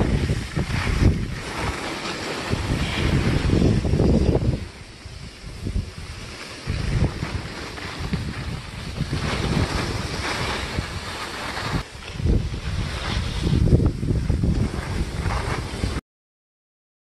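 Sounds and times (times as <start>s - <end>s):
skis sliding on packed snow: 0.0s - 16.0s
wind buffeting microphone: 0.0s - 16.0s.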